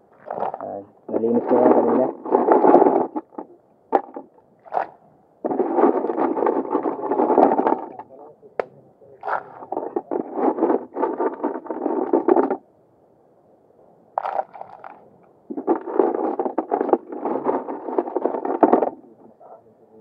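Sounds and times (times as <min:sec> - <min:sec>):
scraping and rustling: 0:00.2 - 0:08.2, 0:09.2 - 0:12.6, 0:14.2 - 0:19.6
sharp clatter: 0:09.2 - 0:12.6, 0:15.5 - 0:19.0.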